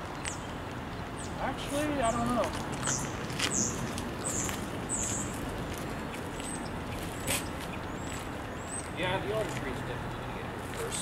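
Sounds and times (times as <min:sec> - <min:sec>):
small birds chirping: 0:00.1 - 0:11.0.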